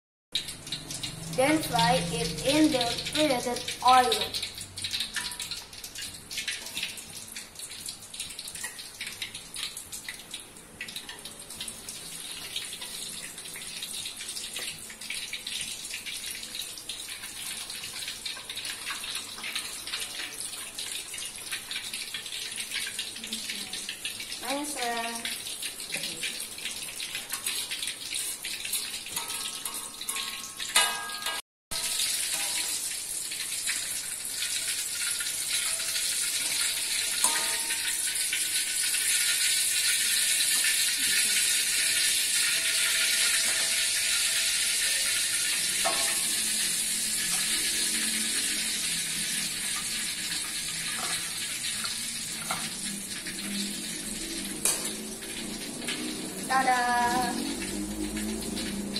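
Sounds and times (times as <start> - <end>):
deep-frying sizzle in oil: 0.4 - 58.9.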